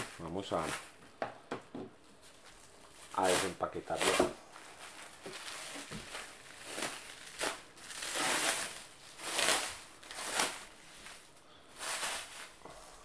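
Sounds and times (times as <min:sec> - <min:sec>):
plastic wrapping crinkling: 0:02.2 - 0:13.0.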